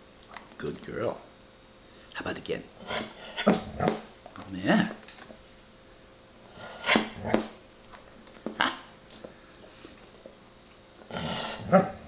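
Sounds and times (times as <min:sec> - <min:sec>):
dog vocalizing: 0:02.8 - 0:04.0.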